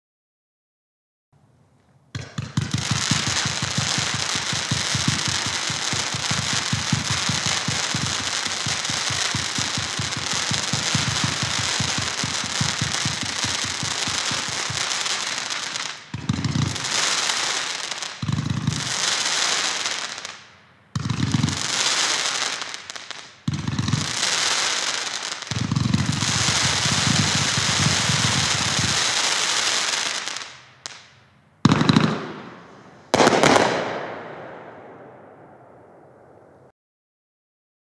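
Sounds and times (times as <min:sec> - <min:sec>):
fireworks bursts: 0:02.2 - 0:36.7
fireworks hiss: 0:02.6 - 0:31.1
fireworks launch thumps: 0:31.7 - 0:36.0.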